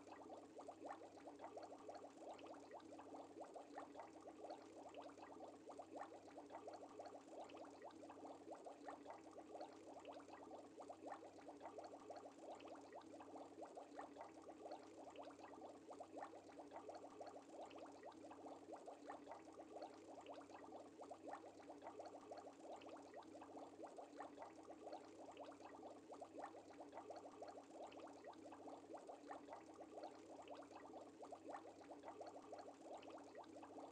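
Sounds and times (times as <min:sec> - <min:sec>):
aquarium air bubbling: 0:00.0 - 0:33.9.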